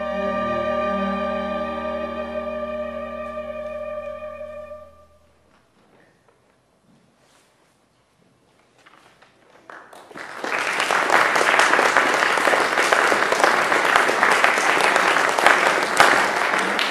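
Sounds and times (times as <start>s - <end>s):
audience applauding: 9.5s - 16.9s.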